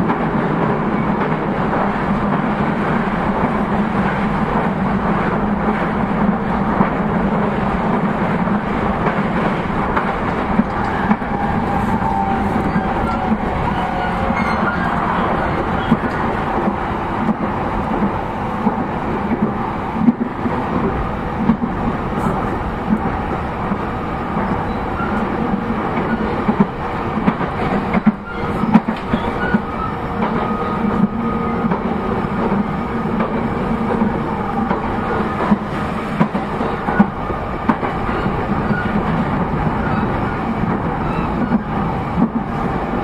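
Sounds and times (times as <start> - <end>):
train rolling and motor noise: 0.0 - 43.0
wheels clacking over rail joints: 7.8 - 42.6.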